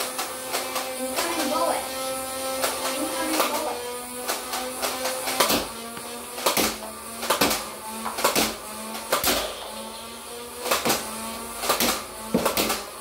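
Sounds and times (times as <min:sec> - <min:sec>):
motor hum: 0:00.0 - 0:13.0
dart blaster shots: 0:02.5 - 0:09.9, 0:10.5 - 0:13.0.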